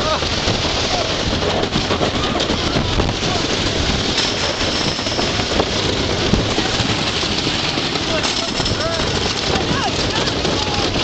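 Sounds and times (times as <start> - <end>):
train rattling on wooden track: 0.0 - 11.0
wind rush over microphone: 0.0 - 11.0.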